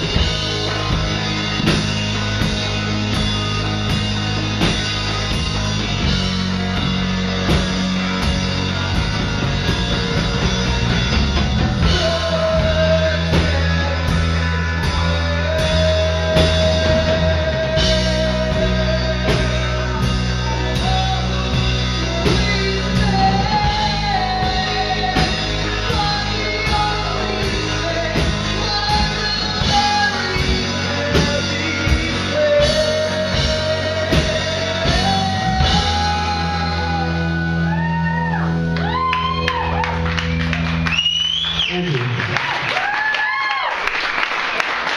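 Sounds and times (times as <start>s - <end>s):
rock band playing: 0.0s - 44.9s
person singing long notes: 11.4s - 39.6s.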